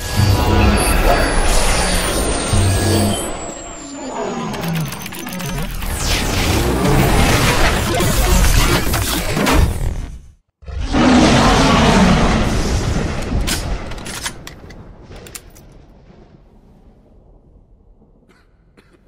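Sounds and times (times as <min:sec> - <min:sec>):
loud booming burst: 0:05.9 - 0:14.0.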